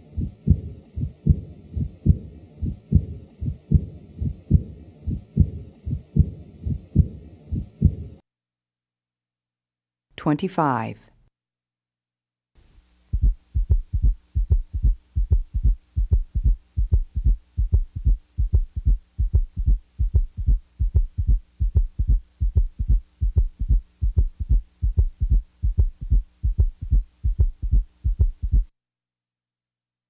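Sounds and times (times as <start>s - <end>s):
faint steady hum: 0.0s - 8.2s, 12.6s - 28.7s
heartbeat: 0.0s - 8.2s, 13.1s - 28.7s.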